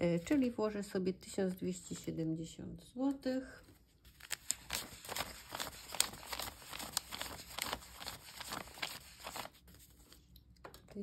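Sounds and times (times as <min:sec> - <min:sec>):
banknotes counted by hand: 0:04.2 - 0:09.6.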